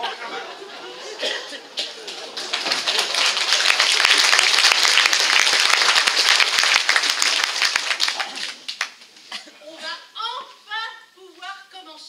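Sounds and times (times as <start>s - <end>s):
audience applauding: 1.8s - 9.0s.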